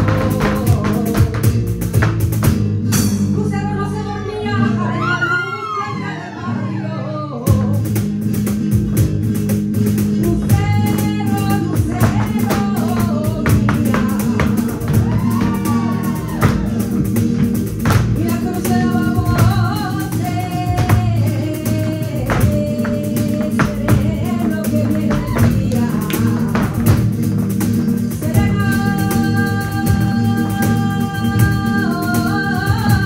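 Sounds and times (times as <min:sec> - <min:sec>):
person singing: 0:00.0 - 0:01.6, 0:10.2 - 0:17.2, 0:17.8 - 0:33.0
heeled feet stamping: 0:00.0 - 0:02.8, 0:10.2 - 0:30.2
cajon strikes: 0:00.0 - 0:03.4, 0:07.5 - 0:33.0
guitar: 0:00.0 - 0:33.0.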